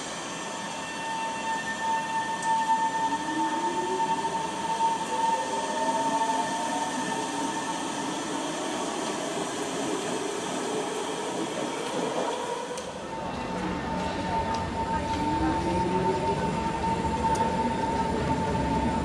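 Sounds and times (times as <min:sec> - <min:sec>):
rumble of moving train cars: 0:00.0 - 0:19.0
train traction motors whining: 0:00.0 - 0:19.0
steady high tone: 0:00.2 - 0:08.6.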